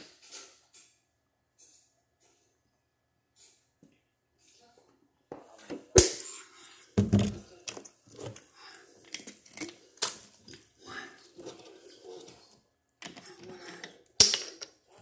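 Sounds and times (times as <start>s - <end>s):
close-up eating and drinking: 5.5s - 15.0s.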